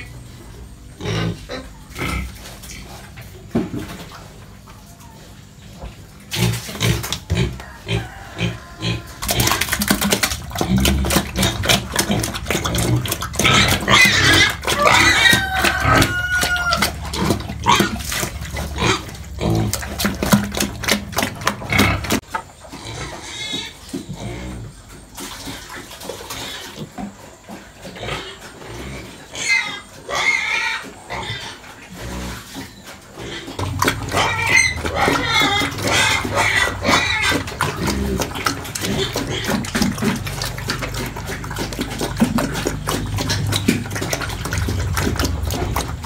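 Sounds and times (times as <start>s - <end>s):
pigs grunting and squealing: 0.0s - 46.0s.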